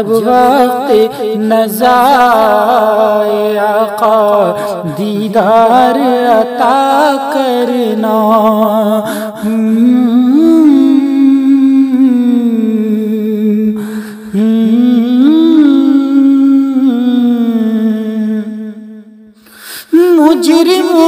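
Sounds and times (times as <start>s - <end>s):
man singing wordlessly: 0.0s - 18.9s, 19.8s - 21.0s.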